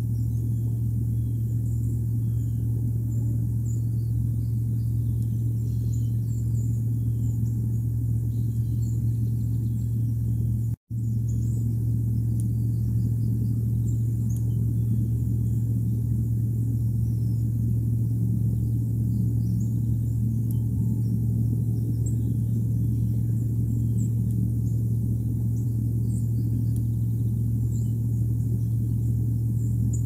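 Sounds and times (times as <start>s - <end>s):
low rumble with hum: 0.0s - 30.0s.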